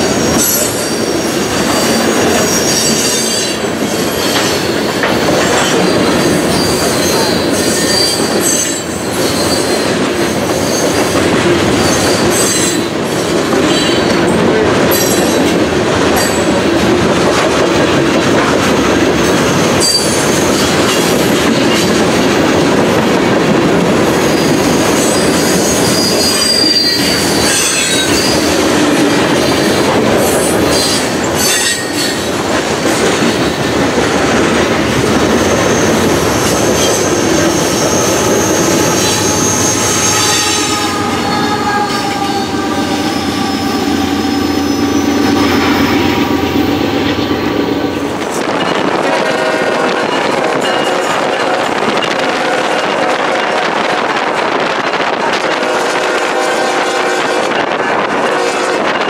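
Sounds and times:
freight train wheels squealing: 0:00.0 - 0:14.3, 0:19.3 - 0:22.0, 0:24.2 - 0:33.6, 0:35.2 - 0:48.9
diesel locomotive passing: 0:00.0 - 0:59.0
dull train rumble: 0:00.0 - 0:59.0.

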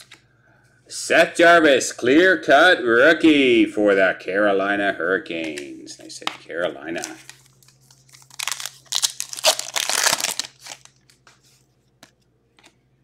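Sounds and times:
foil wrapper crinkling: 0:06.9 - 0:11.4.

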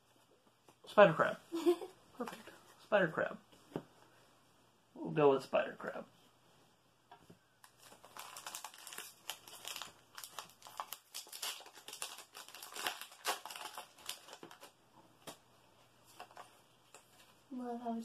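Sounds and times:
foil wrapper crinkling: 0:07.6 - 0:14.8.

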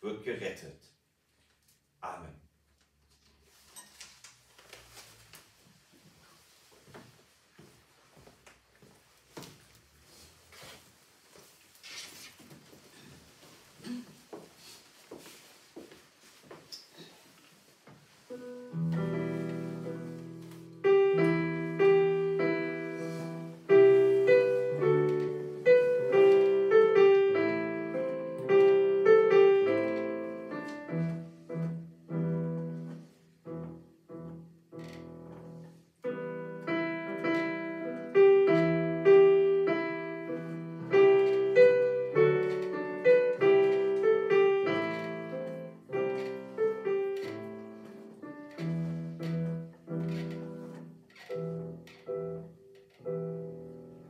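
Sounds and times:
digital piano playing: 0:18.3 - 0:34.5, 0:36.0 - 0:54.0.

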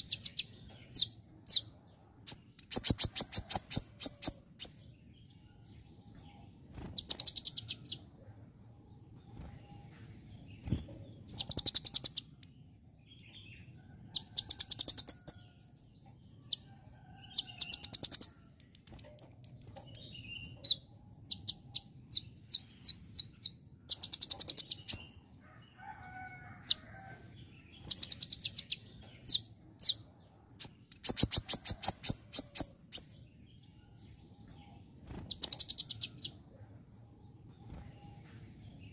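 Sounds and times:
bird singing rapid high chips: 0:02.3 - 0:04.8, 0:06.8 - 0:08.0, 0:11.3 - 0:12.6, 0:17.4 - 0:25.1, 0:27.8 - 0:30.0, 0:30.6 - 0:33.1, 0:35.1 - 0:36.4.

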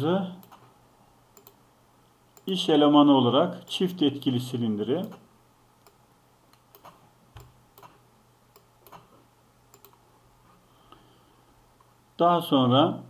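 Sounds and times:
computer mouse clicking: 0:00.4 - 0:00.7, 0:01.4 - 0:01.6, 0:05.8 - 0:09.1, 0:09.7 - 0:10.0.

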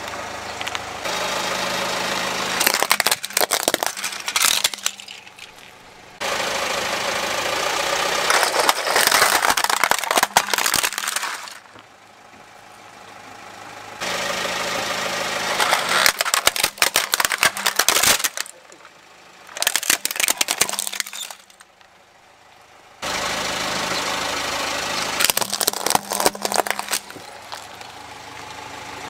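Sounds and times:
car engine idling: 0:00.0 - 0:29.0
tyre crunching plastic toys: 0:02.6 - 0:05.8, 0:08.2 - 0:11.8, 0:15.4 - 0:18.9, 0:19.5 - 0:21.8, 0:25.2 - 0:28.0.

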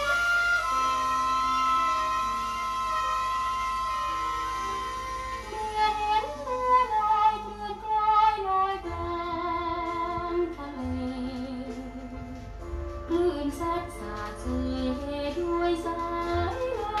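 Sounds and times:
band accompaniment: 0:00.0 - 0:08.0
woman singing a slow ballad: 0:05.4 - 0:12.4, 0:13.1 - 0:17.0.

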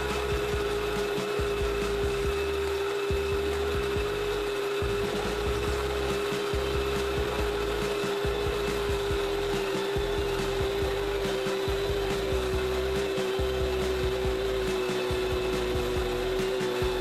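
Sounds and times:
blender motor whine: 0:00.0 - 0:17.0.

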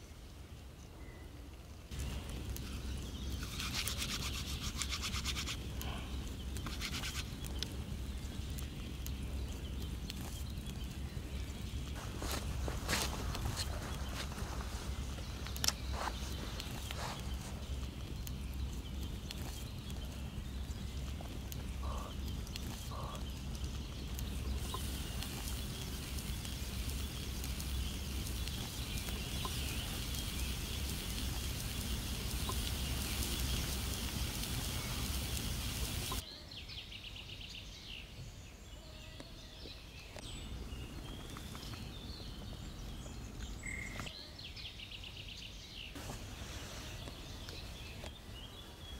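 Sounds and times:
small birds chirping: 0:01.9 - 0:48.9
meat sizzling: 0:23.8 - 0:36.2.

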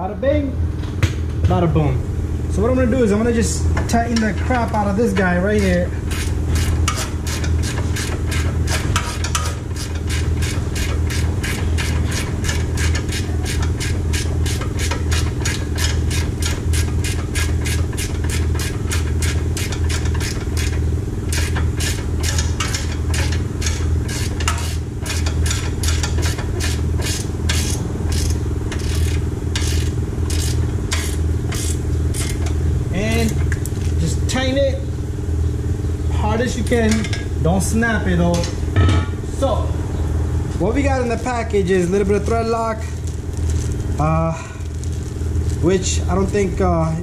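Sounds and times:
steady low hum: 0:00.0 - 0:47.0
hand ratchet clicking: 0:05.6 - 0:32.5.

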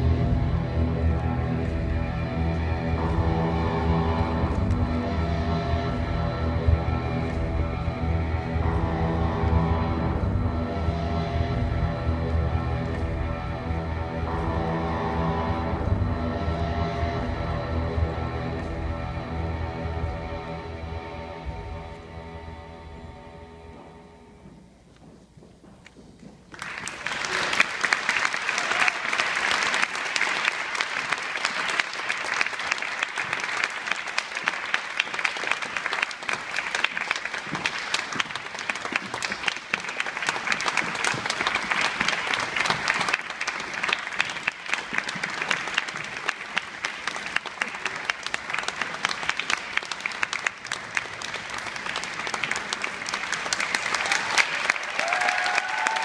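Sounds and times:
audience applauding: 0:26.5 - 0:56.0.

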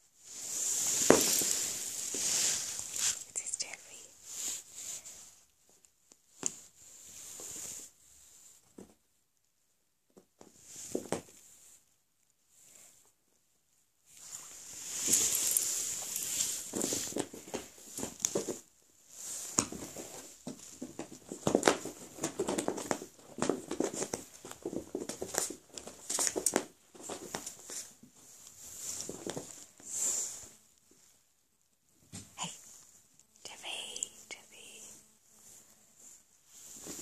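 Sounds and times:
cat paws scrabbling on carpet: 0:14.2 - 0:31.0.

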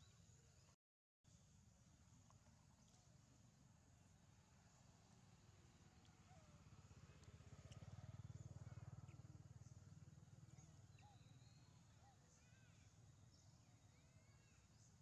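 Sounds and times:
faint low hum: 0:01.3 - 0:15.0.

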